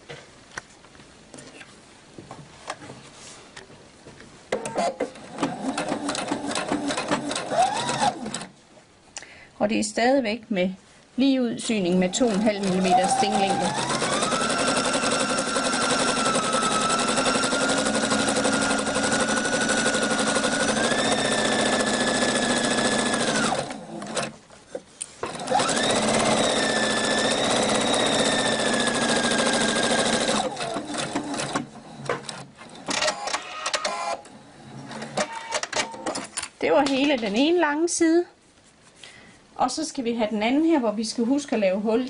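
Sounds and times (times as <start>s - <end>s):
sewing machine running: 5.3s - 8.5s, 12.1s - 24.3s, 25.3s - 31.7s.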